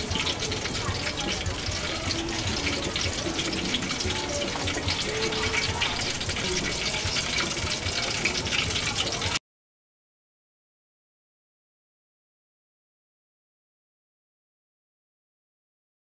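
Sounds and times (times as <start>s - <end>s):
deep-frying sizzle with crackles: 0.0s - 9.4s.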